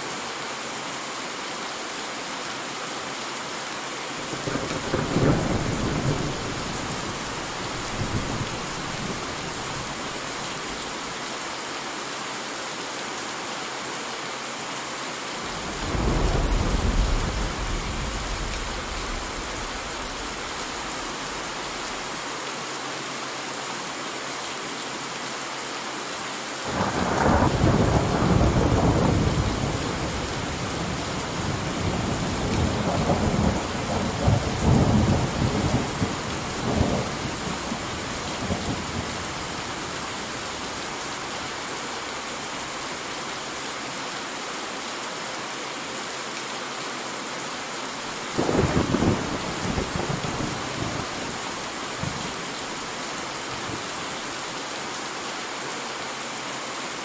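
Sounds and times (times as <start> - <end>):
steady rain: 0.0 - 57.0
thunder rumbling: 4.3 - 10.7, 15.5 - 22.2, 26.7 - 40.8, 48.3 - 53.0.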